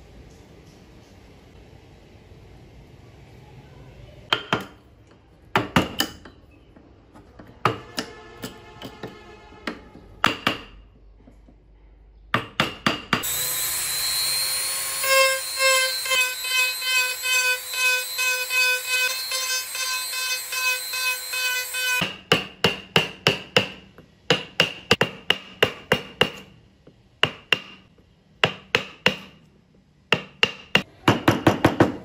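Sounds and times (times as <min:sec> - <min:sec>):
chisel knocking on wood: 0:05.5 - 0:06.2, 0:07.5 - 0:08.2, 0:08.8 - 0:10.8, 0:12.3 - 0:13.2, 0:22.0 - 0:26.5, 0:27.2 - 0:27.8, 0:28.4 - 0:29.4, 0:30.1 - 0:32.0
rotary tool whining: 0:13.2 - 0:22.0.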